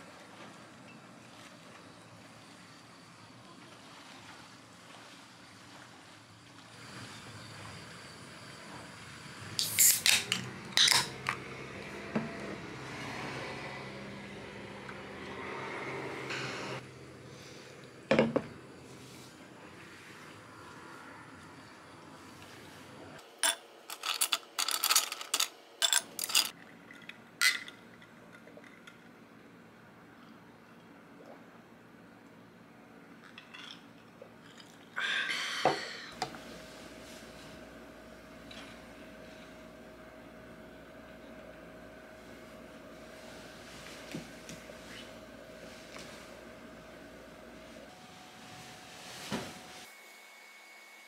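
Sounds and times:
drink can opening with fizz: 9.6 - 11.1.

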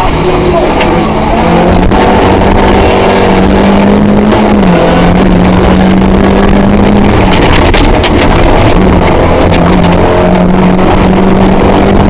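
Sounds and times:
rally car engine at high revs: 0.0 - 12.0
sharp clicks: 6.4 - 10.4.

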